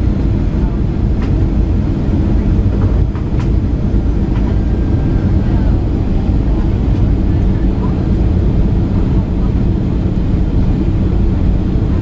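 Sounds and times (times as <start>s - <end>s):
airliner cabin engine roar: 0.0s - 12.0s.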